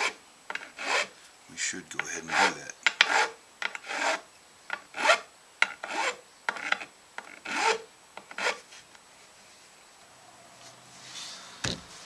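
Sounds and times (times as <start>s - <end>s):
hand file strokes on metal: 0.0s - 1.2s, 2.0s - 4.2s.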